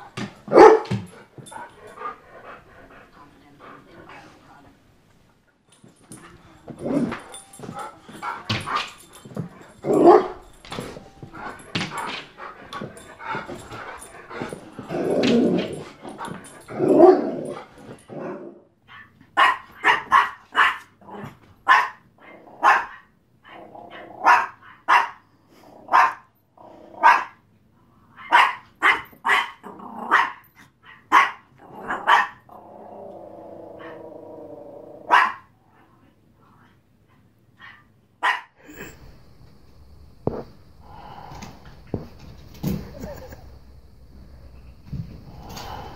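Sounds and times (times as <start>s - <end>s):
dogs barking deeply: 0.0s - 2.6s, 6.8s - 18.6s, 35.0s - 35.5s
dog growling: 6.1s - 18.6s, 29.6s - 30.2s, 31.6s - 35.2s, 44.3s - 45.9s.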